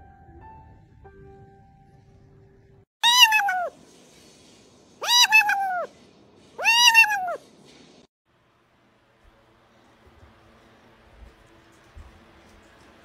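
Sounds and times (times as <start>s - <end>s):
kitten meowing: 3.0s - 3.7s, 5.0s - 5.9s, 6.6s - 7.4s.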